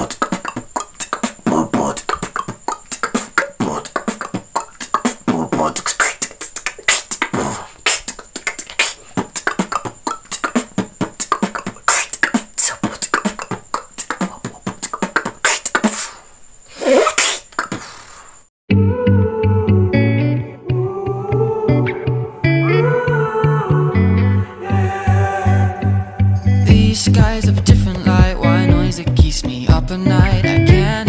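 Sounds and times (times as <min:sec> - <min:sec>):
pitched vocal sound: 0:00.0 - 0:16.2, 0:18.7 - 0:31.0
beatboxing clicks and beats: 0:00.0 - 0:18.4.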